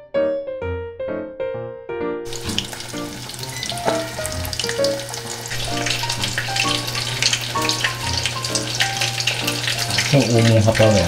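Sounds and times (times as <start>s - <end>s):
soft background piano music: 0.0s - 11.0s
crackling sizzle-like noise: 2.3s - 11.0s.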